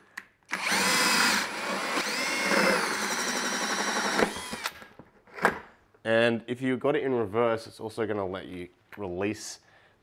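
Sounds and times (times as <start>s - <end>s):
drill cutting through plastic: 0.5s - 4.9s.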